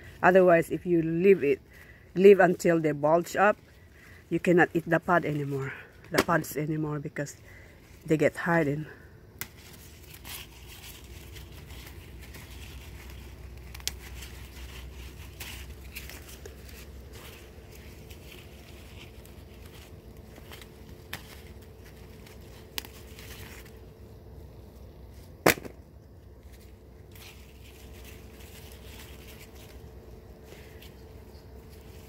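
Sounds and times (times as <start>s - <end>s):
faint steady hum: 0.0s - 32.0s
leaf rustle: 0.0s - 32.0s
bean pods snapping: 9.4s - 31.0s.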